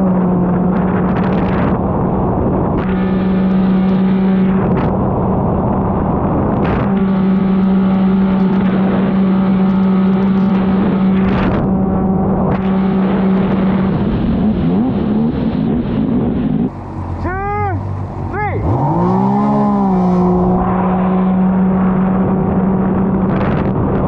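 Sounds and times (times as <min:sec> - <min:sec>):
jet ski engine running: 0:00.0 - 0:24.0.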